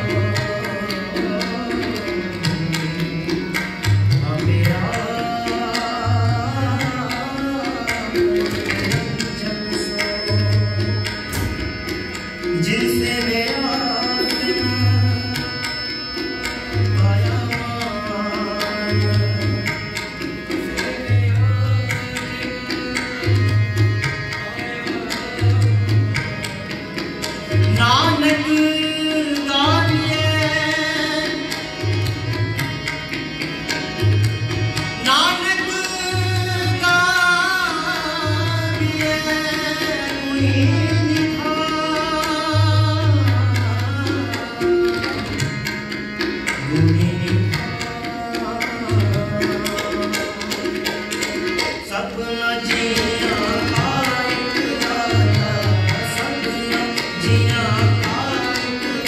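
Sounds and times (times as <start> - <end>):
harmonium: 0.0 - 59.0
tabla bass drum strikes: 7.9 - 22.7.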